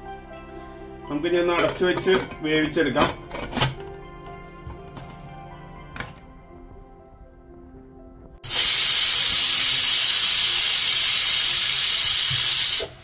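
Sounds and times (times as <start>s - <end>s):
faint background music: 0.0s - 12.9s
pressure cooker hissing steam: 8.4s - 13.0s.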